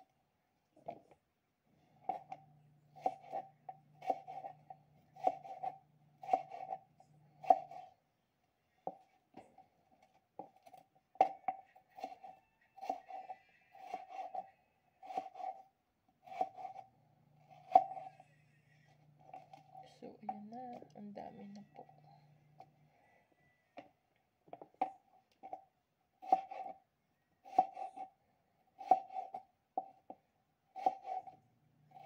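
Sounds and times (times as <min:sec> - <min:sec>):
knife chopping on plastic board: 0:03.0 - 0:06.8, 0:07.4 - 0:07.9, 0:17.5 - 0:18.1, 0:26.2 - 0:26.8, 0:27.4 - 0:28.1, 0:28.8 - 0:30.2, 0:30.8 - 0:31.4.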